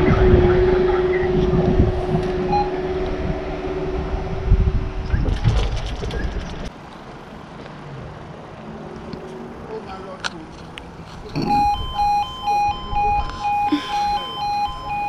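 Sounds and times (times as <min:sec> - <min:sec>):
low rumble: 0:00.0 - 0:06.7.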